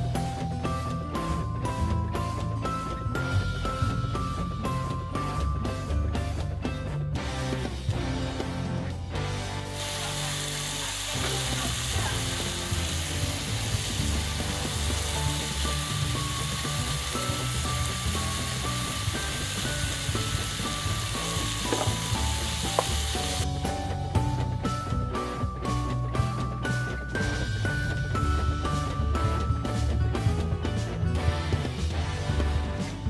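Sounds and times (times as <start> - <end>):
background music: 0.0 - 33.0
vegetables sizzling in a skillet: 9.8 - 23.5.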